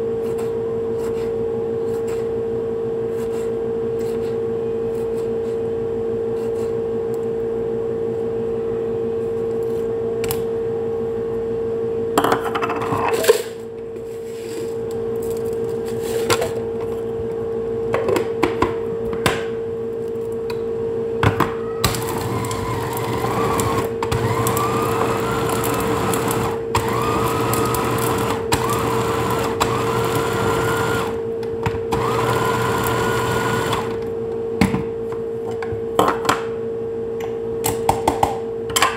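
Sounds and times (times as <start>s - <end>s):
electric food chopper whine: 21.8s - 34.1s.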